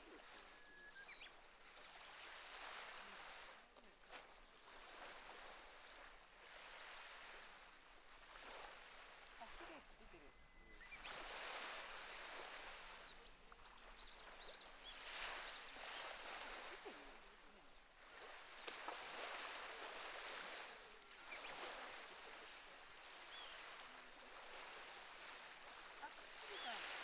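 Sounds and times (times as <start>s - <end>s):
faint bird chirps: 0.0s - 2.2s, 9.4s - 19.0s, 20.7s - 27.0s
small waves washing ashore: 0.0s - 27.0s.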